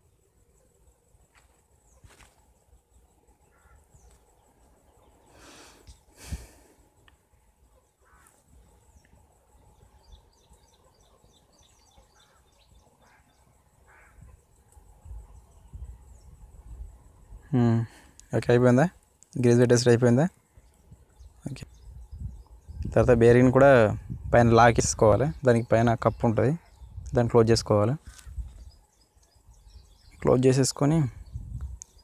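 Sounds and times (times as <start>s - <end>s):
faint high bird chirps: 7.0s - 17.9s, 19.8s - 32.0s.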